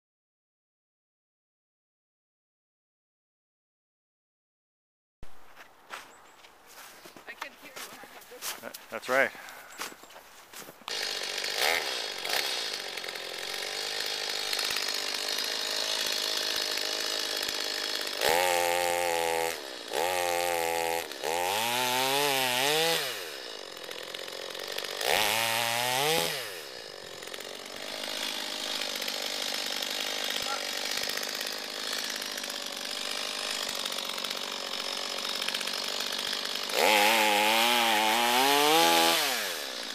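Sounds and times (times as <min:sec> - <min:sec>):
chainsaw revving and idling: 0:07.7 - 0:09.8, 0:10.8 - 0:39.9.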